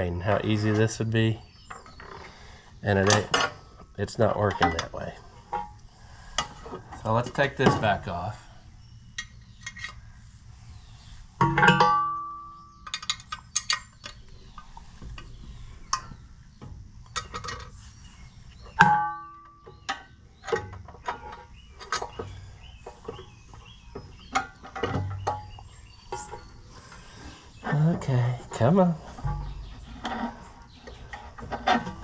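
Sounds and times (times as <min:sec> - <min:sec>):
metal bracket and bolts rattling: 0:03.0 - 0:03.6, 0:04.3 - 0:05.8, 0:11.4 - 0:14.2, 0:28.6 - 0:32.0.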